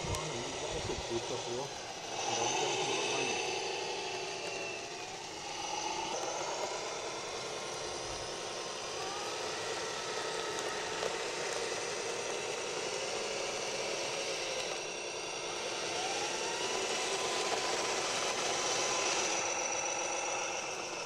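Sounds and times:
whining electric motors: 0.0s - 21.0s.

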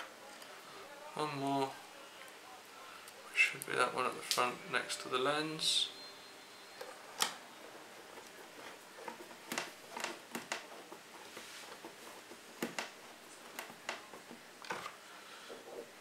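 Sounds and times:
faint scraping on plastic: 6.7s - 16.0s.

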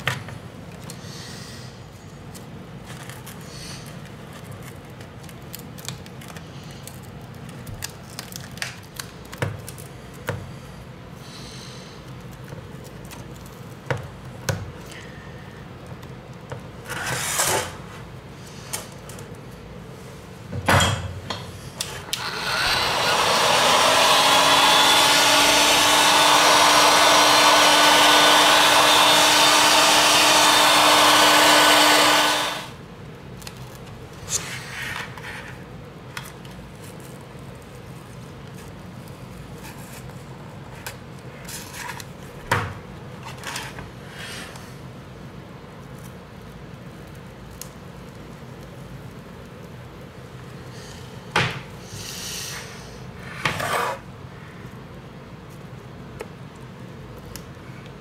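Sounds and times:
heat gun fan blowing: 21.3s - 33.3s.

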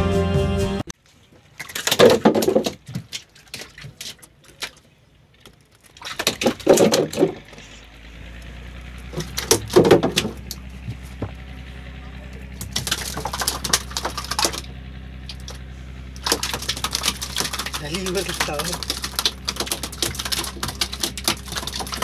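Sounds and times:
fish flapping on wooden planks: 1.3s - 11.7s, 12.4s - 22.0s
low hum: 5.0s - 22.0s.

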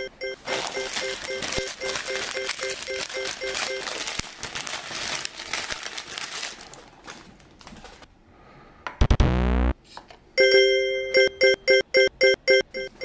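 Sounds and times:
foil bag crinkling: 0.4s - 8.1s.

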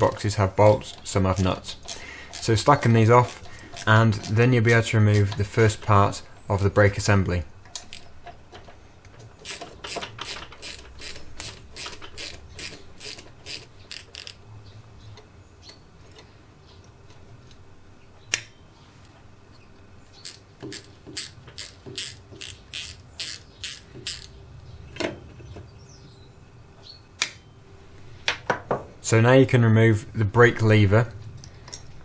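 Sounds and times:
socket ratchet clicking: 0.0s - 5.6s, 9.4s - 14.4s, 20.2s - 24.4s.

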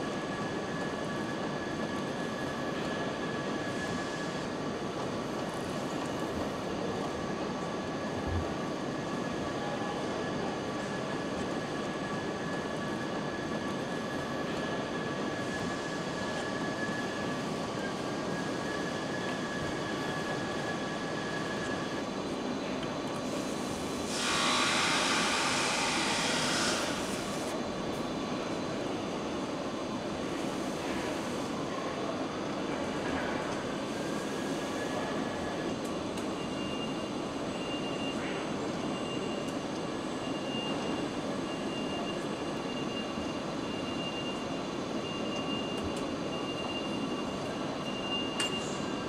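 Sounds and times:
assembly hall machinery noise: 0.0s - 49.0s.

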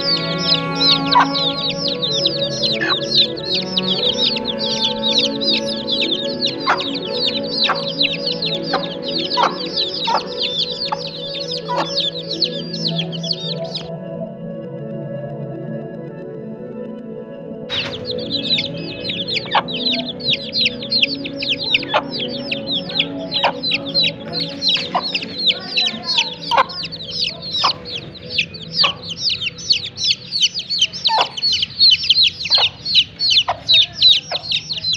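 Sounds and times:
chicks peeping: 0.0s - 13.9s, 17.7s - 34.9s
hen clucking: 0.0s - 13.9s, 17.7s - 34.9s
soft music: 0.0s - 34.9s.

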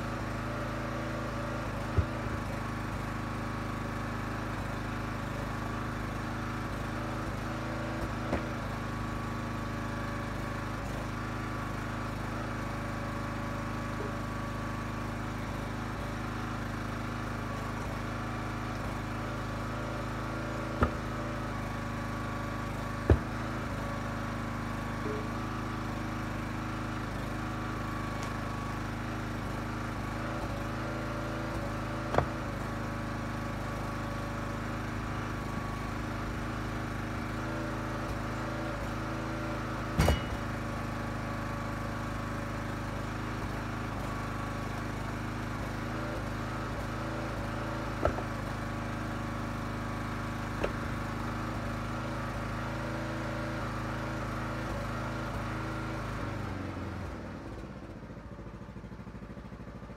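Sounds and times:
log splitter engine running: 0.0s - 59.9s
wood pieces knocking in truck bed: 8.0s - 8.6s, 20.7s - 21.3s, 23.0s - 23.7s, 39.9s - 40.7s, 48.0s - 48.4s, 50.6s - 51.0s.

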